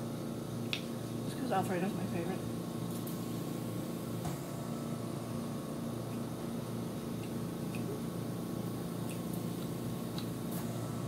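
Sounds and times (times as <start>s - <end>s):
steady low hum: 0.0s - 11.0s
person chewing food: 7.1s - 8.0s
wet mouth clicks: 7.2s - 8.0s, 9.0s - 9.3s.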